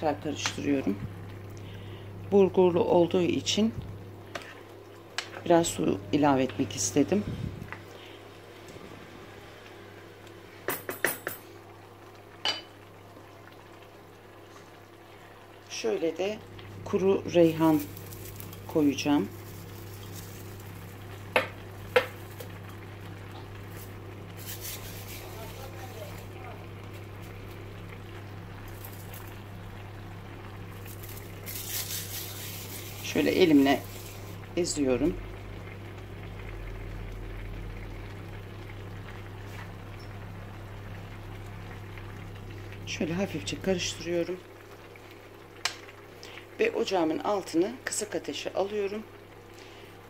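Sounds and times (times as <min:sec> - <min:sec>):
steady low hum: 0:00.0 - 0:10.3, 0:14.1 - 0:44.7
stew simmering in a pan: 0:00.0 - 0:50.0
dried herbs crushed crackling: 0:16.5 - 0:35.2.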